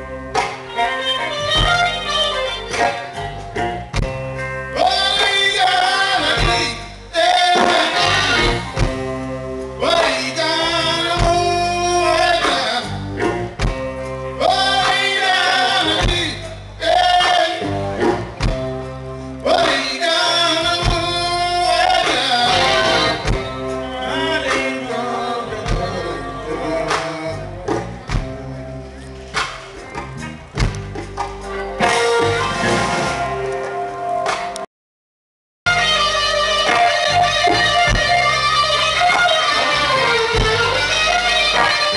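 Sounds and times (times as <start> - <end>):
drum kit: 0.0 - 34.6, 35.7 - 41.9
electric guitar: 0.0 - 34.6, 35.7 - 41.9
man singing: 4.7 - 8.8, 9.8 - 13.1, 14.4 - 17.8, 19.4 - 28.6.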